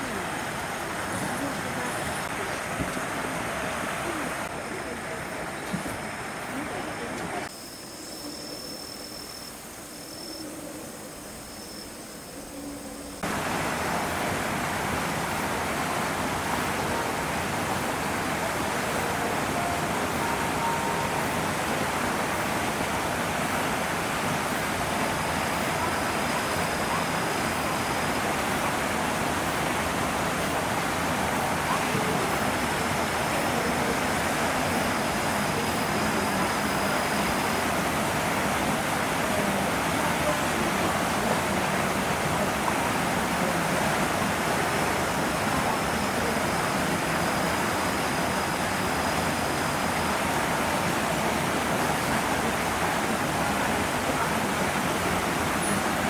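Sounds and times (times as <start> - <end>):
faint thin high tone: 7.5 - 13.2, 19.5 - 21.4.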